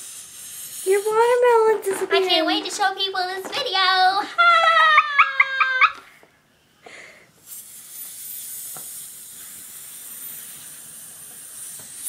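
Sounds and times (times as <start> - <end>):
helium hissing from balloon: 0.0 - 2.6, 6.9 - 12.0.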